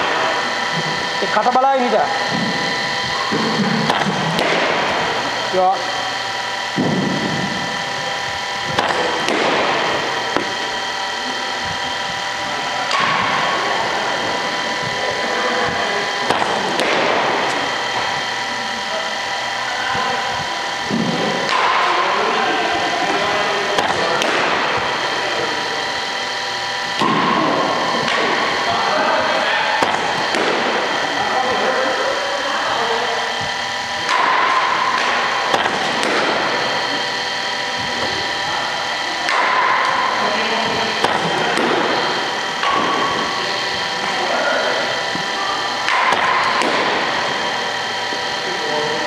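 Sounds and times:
motor-like hum: 0.0s - 49.0s
cricket bat hitting ball: 34.2s - 36.5s.

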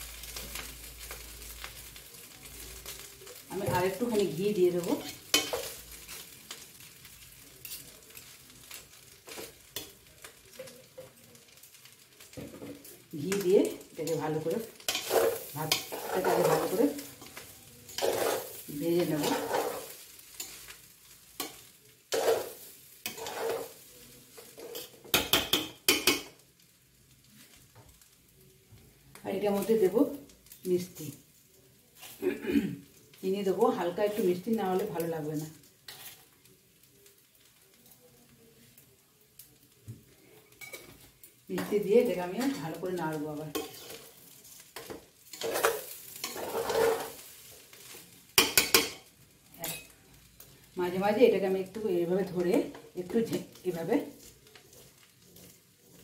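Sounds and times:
light sizzle: 0.0s - 56.0s
metal spatula clanking on pot: 5.0s - 5.7s, 24.7s - 26.3s, 48.4s - 49.9s
spatula scraping rice in pot: 14.8s - 20.7s, 21.4s - 23.8s, 35.9s - 36.3s, 43.5s - 49.0s, 54.2s - 56.0s.

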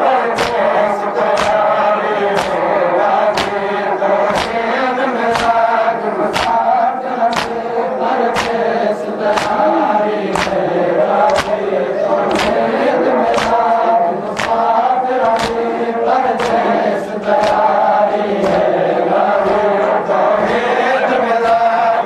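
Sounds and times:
men chanting in chorus: 0.0s - 22.0s
hands striking chests: 8.3s - 8.6s, 9.3s - 9.6s, 10.3s - 10.6s, 11.3s - 11.6s, 13.3s - 13.6s, 15.2s - 15.6s.

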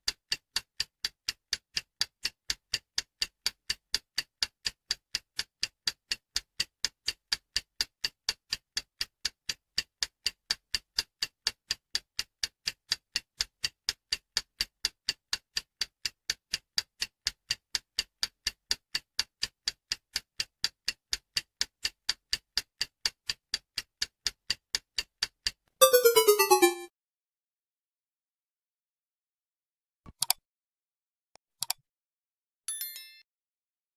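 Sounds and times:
timer ticking: 25.8s - 26.9s.

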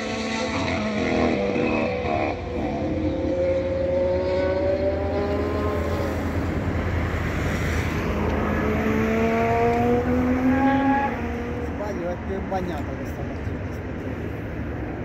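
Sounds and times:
race car engine accelerating: 0.0s - 11.9s.

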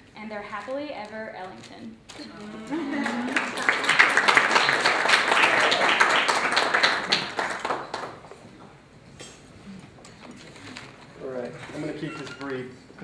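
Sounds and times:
guests applauding: 2.7s - 8.4s.

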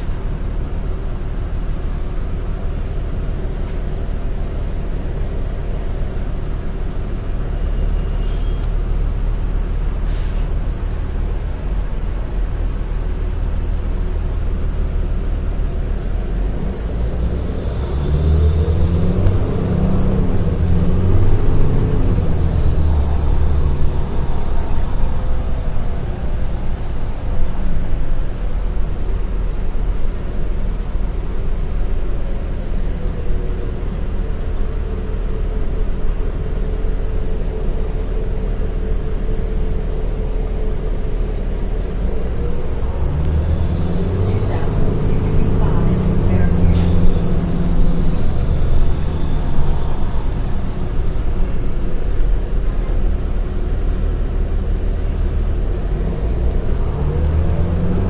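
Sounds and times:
bus diesel engine: 0.0s - 58.0s
short air hisses: 10.0s - 10.5s
high-pitched whine: 16.2s - 29.0s, 37.3s - 53.0s.

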